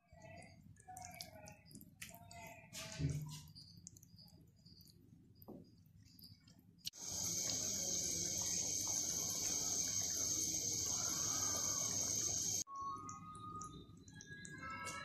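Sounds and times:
food simmering in a wok: 2.8s - 15.0s.

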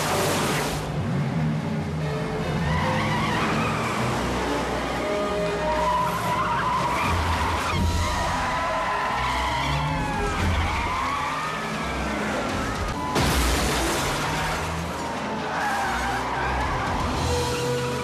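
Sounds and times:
tyres squealing: 2.6s - 13.2s.

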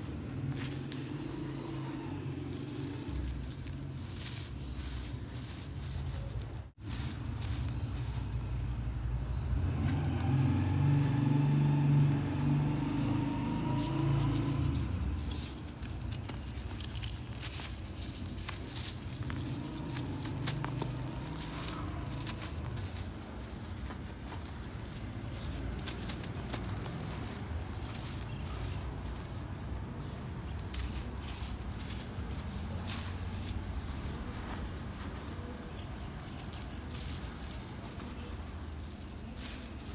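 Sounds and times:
passing vehicle engine rumble: 0.0s - 39.9s
dry dirt crumbling in hand: 12.2s - 39.9s.

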